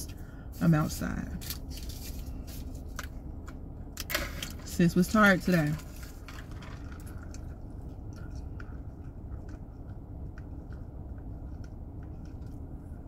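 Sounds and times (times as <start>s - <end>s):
low hum in car cabin: 0.0s - 13.0s
person chewing fries: 6.2s - 13.0s.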